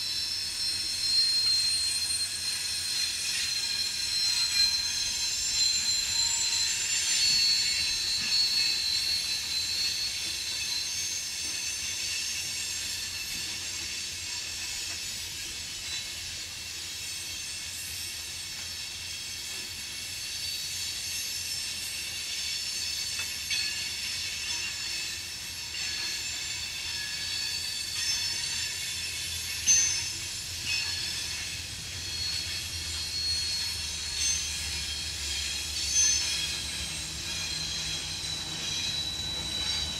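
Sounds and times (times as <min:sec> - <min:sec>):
low train rumble: 0:00.0 - 0:39.9
train wheel flanges squealing: 0:00.0 - 0:39.9.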